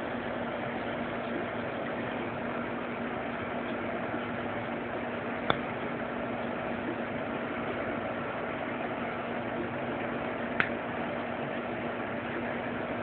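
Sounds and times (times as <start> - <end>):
mechanical hum with hiss: 0.0 - 13.0.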